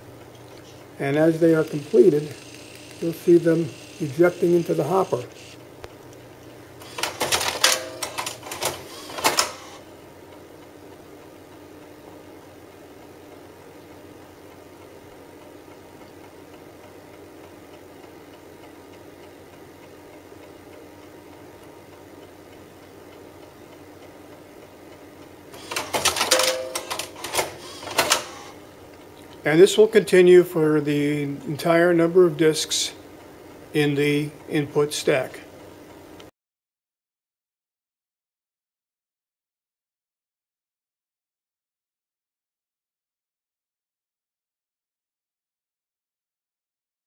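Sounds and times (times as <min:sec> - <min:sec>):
faint steady hum: 0:00.0 - 0:36.3
disk mechanism rapid clicks: 0:01.1 - 0:05.6, 0:06.8 - 0:09.8, 0:25.5 - 0:28.6.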